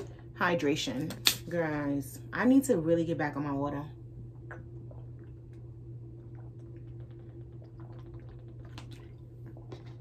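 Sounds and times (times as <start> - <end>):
steady low hum: 0.0 - 10.0
person gulping water: 4.3 - 10.0.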